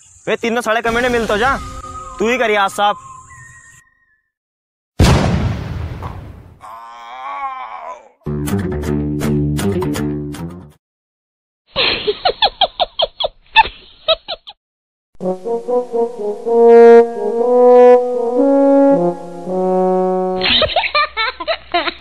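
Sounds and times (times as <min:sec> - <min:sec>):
held horn notes: 0:15.2 - 0:20.4.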